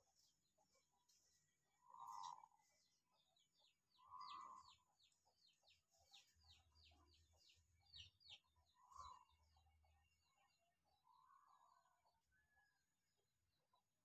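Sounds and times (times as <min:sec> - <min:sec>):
short lower bird calls: 0:01.8 - 0:02.6, 0:04.0 - 0:04.8.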